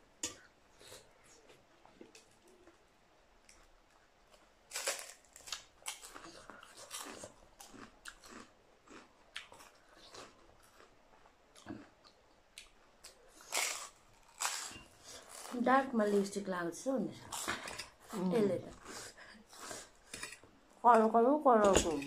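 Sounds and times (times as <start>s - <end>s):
crunchy cucumber chewing: 4.3s - 15.6s.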